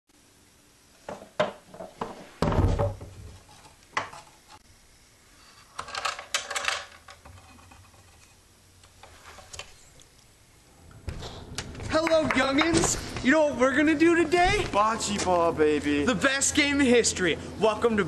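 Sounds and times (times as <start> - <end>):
crate thud set down: 1.1 - 3.1
wooden crate knocks on wooden floor: 1.1 - 3.1.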